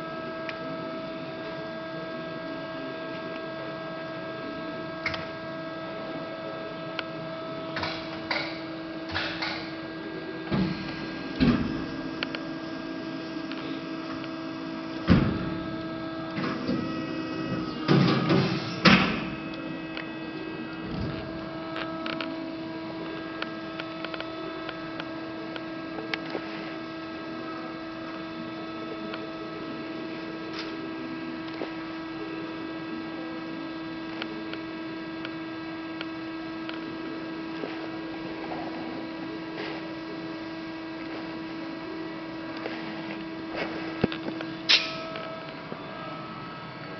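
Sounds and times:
hydraulic press humming: 0:00.0 - 0:46.9.

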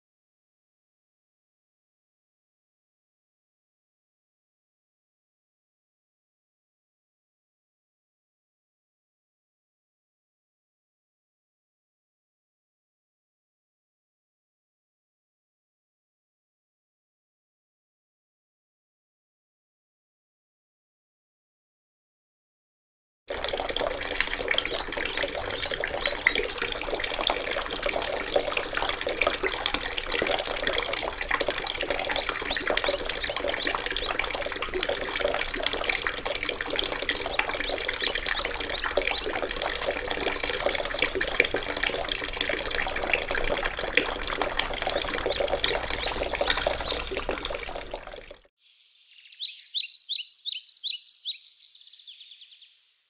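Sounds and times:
water pouring into basin: 0:23.3 - 0:48.5
bird chirping: 0:31.9 - 0:34.2, 0:37.0 - 0:39.9, 0:45.0 - 0:47.2, 0:48.6 - 0:53.0.

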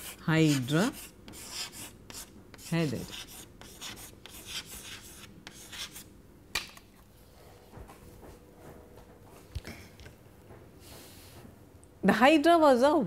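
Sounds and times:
chalk tapping a board: 0:00.0 - 0:06.0
chalk scratching on a chalkboard: 0:00.0 - 0:06.1.

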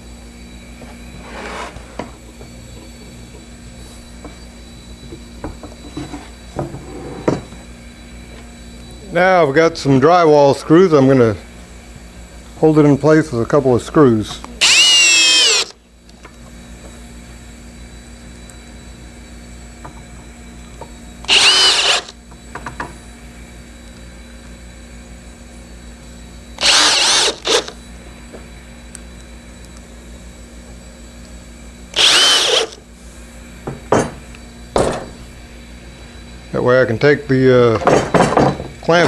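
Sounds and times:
cordless drill motor bursts: 0:14.6 - 0:15.8, 0:21.2 - 0:22.2, 0:26.5 - 0:27.8, 0:31.9 - 0:32.9.

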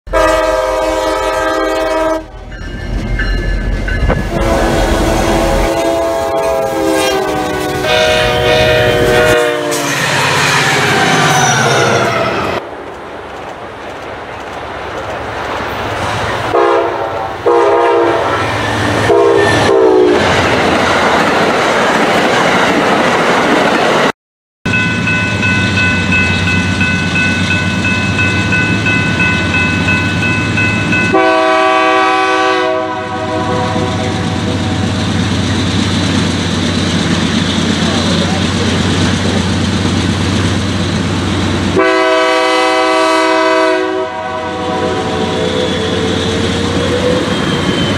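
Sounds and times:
locomotive horn blasts: 0:00.1 - 0:02.5, 0:04.0 - 0:10.2, 0:16.5 - 0:20.2, 0:31.1 - 0:34.8, 0:41.8 - 0:46.4
passing trains rumbling: 0:00.1 - 0:24.1, 0:24.7 - 0:47.9
high-pitched ringing: 0:02.3 - 0:04.5, 0:24.7 - 0:31.2.

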